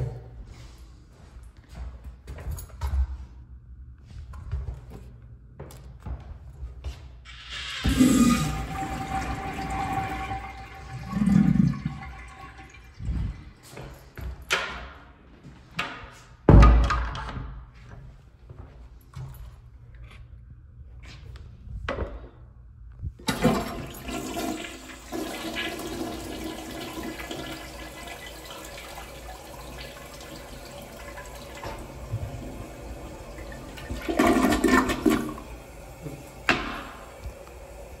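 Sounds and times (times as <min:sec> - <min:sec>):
toilet flushing: 0:07.3 - 0:14.0, 0:23.2 - 0:38.0
water swirling in bowl: 0:07.4 - 0:13.5.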